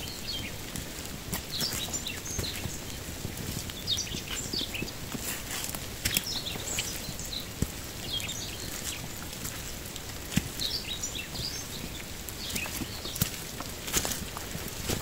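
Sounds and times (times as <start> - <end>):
birds chirping: 0.0 - 0.8, 1.4 - 15.0
footsteps on muddy trail: 0.0 - 15.0
light rain hissing: 0.0 - 15.0.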